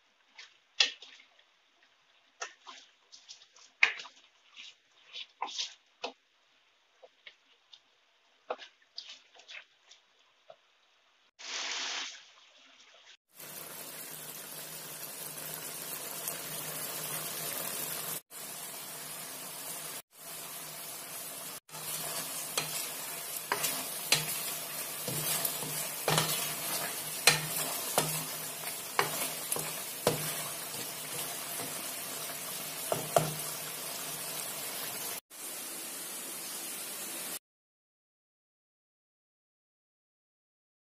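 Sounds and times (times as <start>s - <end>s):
chicken sizzling in a wok: 0.0s - 37.4s
spatula scraping and knocking pan: 2.4s - 6.2s, 7.0s - 10.0s, 21.7s - 33.7s.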